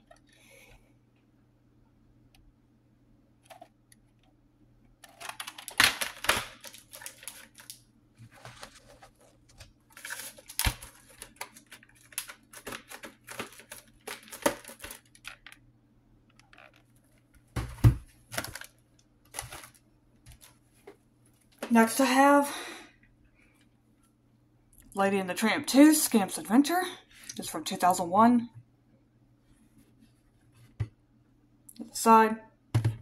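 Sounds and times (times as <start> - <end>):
faint steady hum: 0.0 - 33.0
plastic cassette cases clicking: 5.0 - 7.8.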